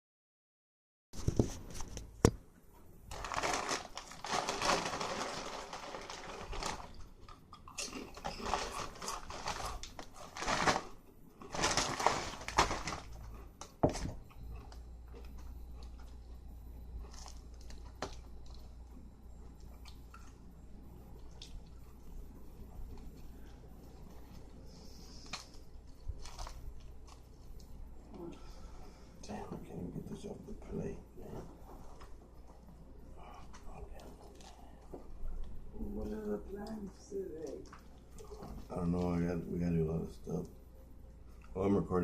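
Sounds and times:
low steady hum: 0:01.2 - 0:42.0
plastic bag rustling: 0:03.1 - 0:07.1, 0:08.1 - 0:14.1.

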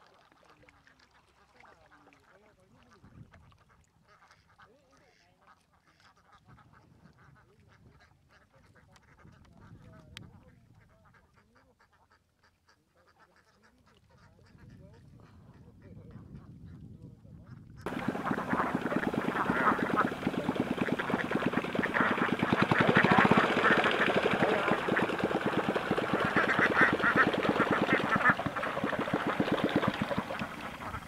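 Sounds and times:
flock of ducks quacking: 0:17.9 - 0:31.0.

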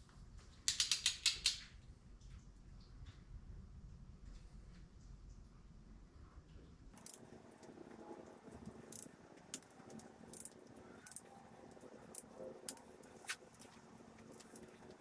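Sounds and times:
torque wrench clicking: 0:10.3 - 0:11.2.

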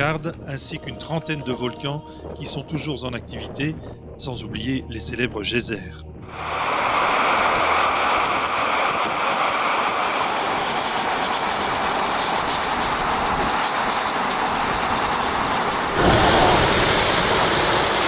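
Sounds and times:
steam hissing from vent: 0:06.3 - 0:18.0.

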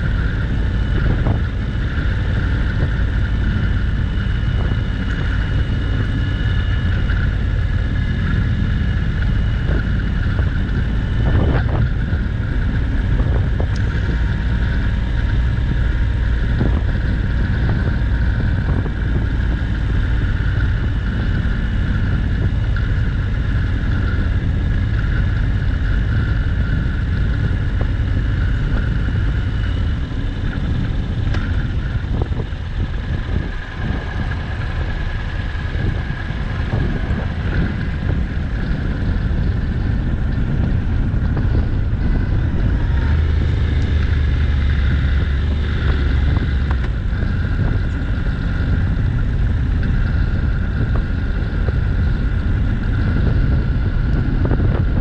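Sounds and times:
motorcycle engine running: 0:00.0 - 0:55.0
wind buffeting microphone: 0:00.0 - 0:55.0.

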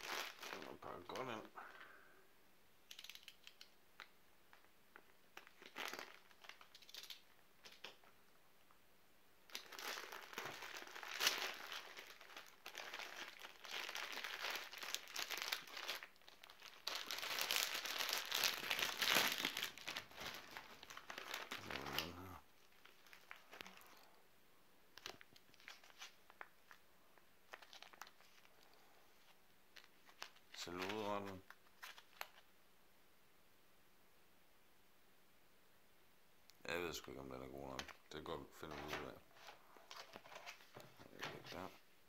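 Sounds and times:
plastic bag crinkling: 0:00.0 - 0:01.4, 0:05.4 - 0:08.0, 0:09.5 - 0:24.1, 0:25.0 - 0:26.8, 0:27.5 - 0:32.4.

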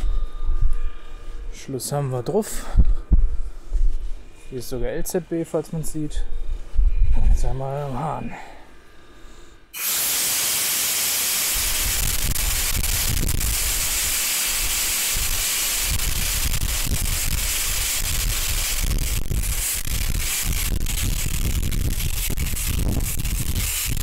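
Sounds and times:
compressed air hissing: 0:09.7 - 0:24.0.

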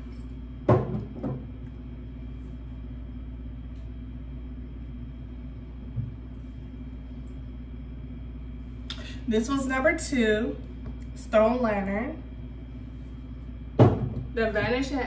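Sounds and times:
steady low hum: 0:00.0 - 0:15.0
glass bottle knocking on table: 0:00.7 - 0:01.4.

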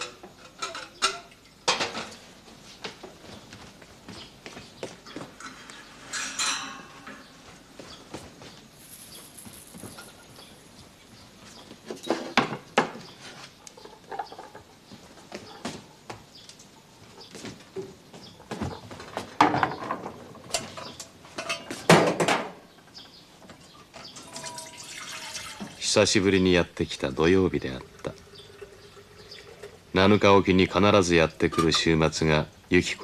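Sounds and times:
clinks and knocks: 0:00.0 - 0:02.2, 0:05.4 - 0:07.3, 0:08.8 - 0:10.7, 0:18.6 - 0:22.6, 0:23.8 - 0:25.6.

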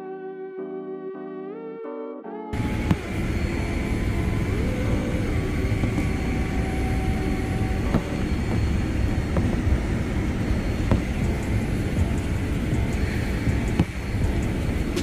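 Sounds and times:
aircraft cabin rumble: 0:02.6 - 0:15.0
light knocks: 0:10.9 - 0:11.4.

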